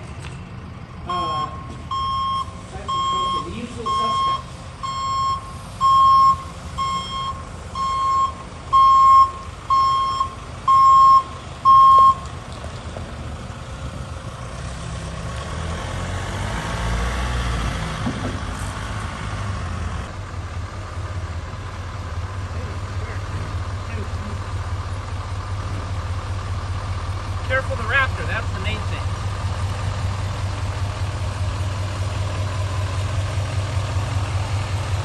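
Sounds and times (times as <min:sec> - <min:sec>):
van driving away: 0:00.0 - 0:35.0
reversing alarm beeping: 0:01.1 - 0:12.3.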